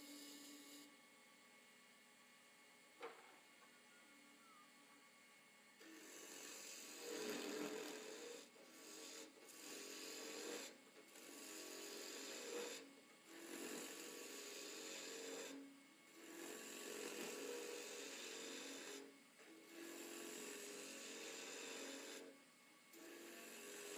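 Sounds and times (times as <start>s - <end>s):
chisel cutting wood on lathe: 0.0s - 0.9s, 5.8s - 22.4s, 23.0s - 23.9s.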